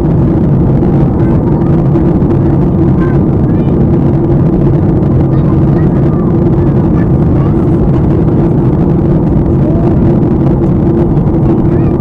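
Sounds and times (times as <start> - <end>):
jet engines droning: 0.0 - 12.0
rushing air: 0.0 - 12.0
steady low hum: 0.0 - 12.0.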